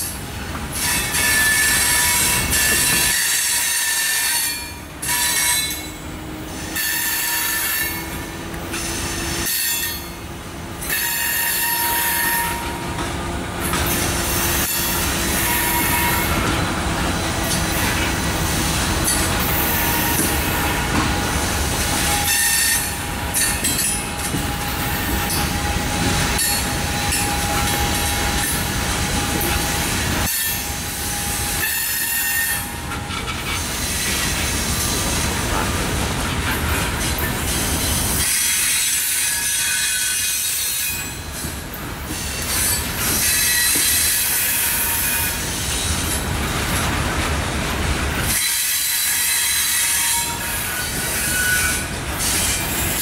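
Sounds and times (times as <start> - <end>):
train wheels rumbling on rails: 0.0 - 53.0
wheel squeal: 6.6 - 10.2, 10.8 - 12.8, 48.3 - 53.0.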